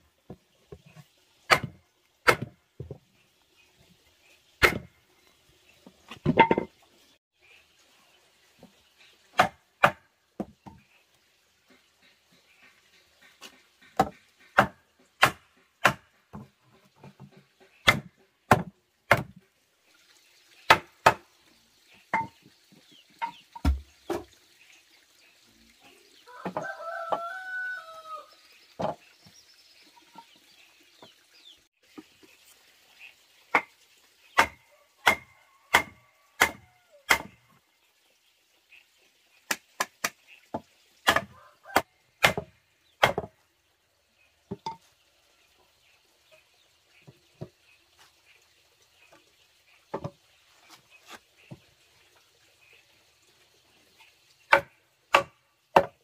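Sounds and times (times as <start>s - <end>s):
wooden mallet knocking timber: 6.2s - 6.7s, 17.1s - 19.3s, 22.2s - 22.4s, 23.6s - 24.3s, 42.2s - 43.3s, 54.5s - 56.0s
rooster crowing: 26.3s - 28.3s.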